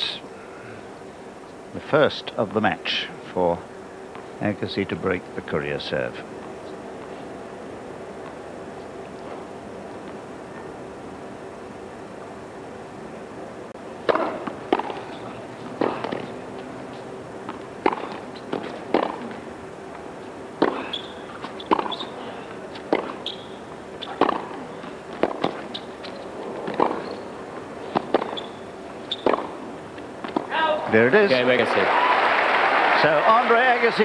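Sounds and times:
racquet hitting tennis ball: 0:14.0 - 0:16.4, 0:17.4 - 0:19.4, 0:20.6 - 0:22.1, 0:22.7 - 0:23.4, 0:24.0 - 0:25.9, 0:26.6 - 0:27.2, 0:27.9 - 0:28.5, 0:29.1 - 0:30.6
tennis ball bouncing: 0:14.0 - 0:19.4, 0:20.6 - 0:23.4, 0:24.0 - 0:30.6.

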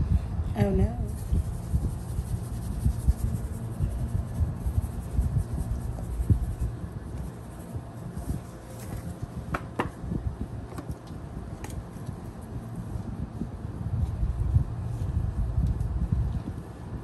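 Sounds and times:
handling bumps and rubbing: 0:08.2 - 0:11.0.

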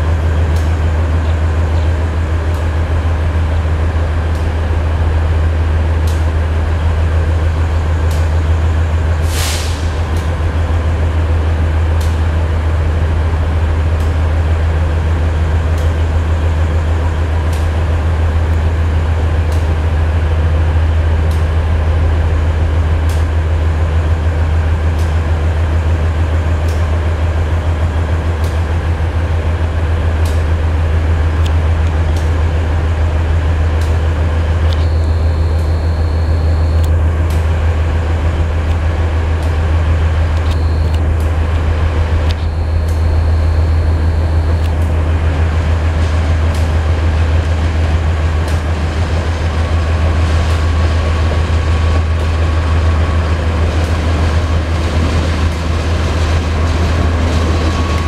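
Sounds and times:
train rumble and hum: 0:00.0 - 0:58.0
high train wheel squeal: 0:56.5 - 0:58.0.

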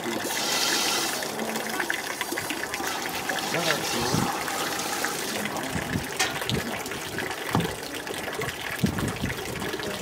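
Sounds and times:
tap water splashing into metal sink: 0:00.0 - 0:10.0.

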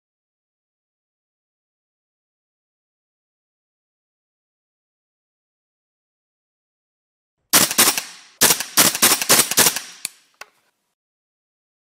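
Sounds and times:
gunshots with ringing tail: 0:07.5 - 0:10.1.

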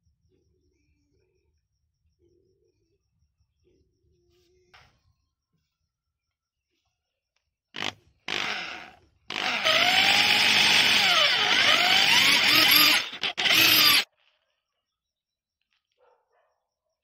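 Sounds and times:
electric drill drilling into wood: 0:07.8 - 0:14.1.

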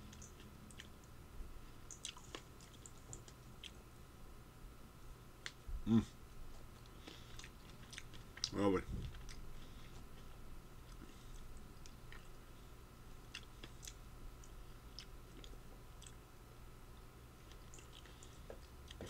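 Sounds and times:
person chewing berries: 0:00.0 - 0:03.9, 0:05.4 - 0:16.3, 0:16.9 - 0:19.0.

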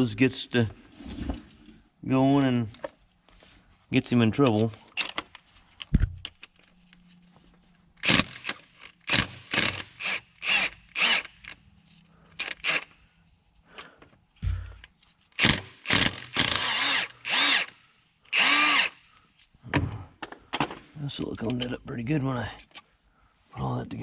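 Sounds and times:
cordless power tool bursts: 0:08.0 - 0:11.6, 0:12.3 - 0:13.0, 0:15.4 - 0:19.0.

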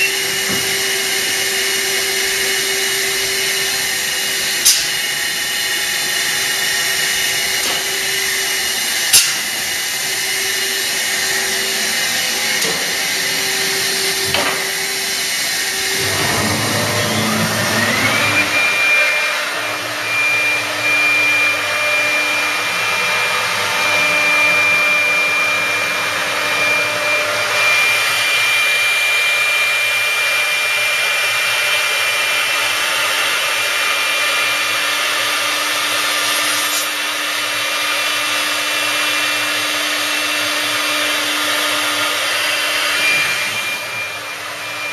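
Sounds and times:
machinery rushing hiss: 0:00.0 - 0:19.3
spindle motor whine: 0:00.0 - 0:44.9.

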